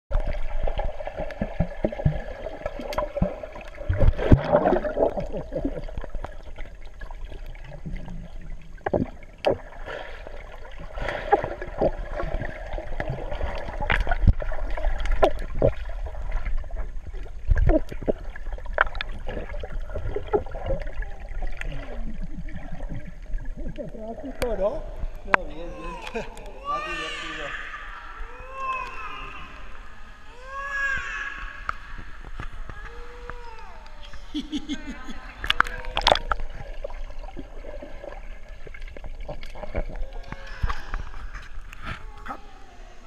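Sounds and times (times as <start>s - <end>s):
underwater gurgling and bubbling: 0.1s - 25.4s, 35.2s - 43.0s
underwater knocks and thuds: 8.8s - 9.7s.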